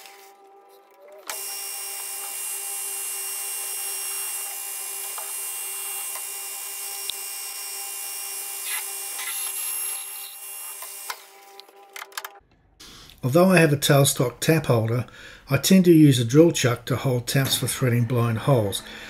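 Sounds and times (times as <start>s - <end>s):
metal lathe humming: 0.0s - 11.7s
drill boring into metal: 1.3s - 11.1s.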